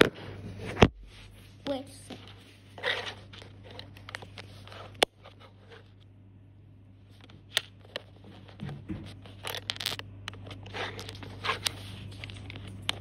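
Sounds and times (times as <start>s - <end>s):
low steady hum: 0.0s - 13.0s
plastic scraping and rustling: 2.1s - 6.0s, 7.1s - 13.0s.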